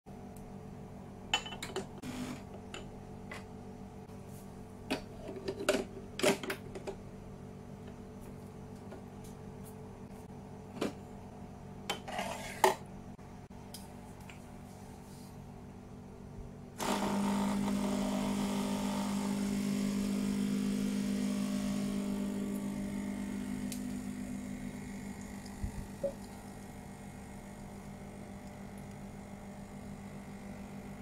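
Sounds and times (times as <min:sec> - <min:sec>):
faint steady hum: 0:19.4 - 0:31.0.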